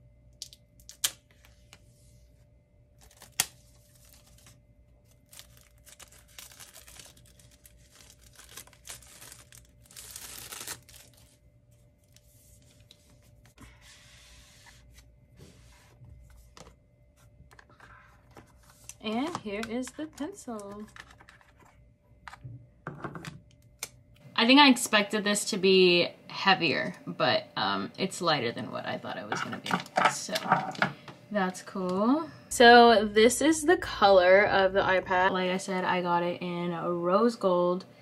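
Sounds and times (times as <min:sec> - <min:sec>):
cardboard tearing and scraping: 0:05.2 - 0:11.2.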